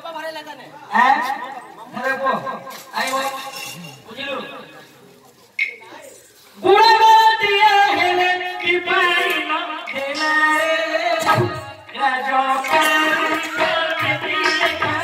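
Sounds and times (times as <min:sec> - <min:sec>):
percussion strikes: 0:02.7 - 0:04.0, 0:05.6 - 0:05.9, 0:07.4 - 0:15.0
woman singing: 0:06.6 - 0:15.0
keyboard accompaniment: 0:07.5 - 0:15.0.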